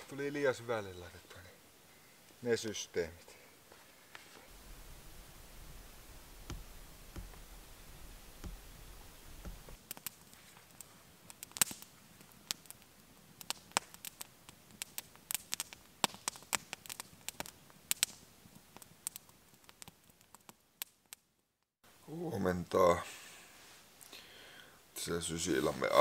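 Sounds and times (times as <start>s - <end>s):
campfire crackling and popping: 3.7s - 21.3s.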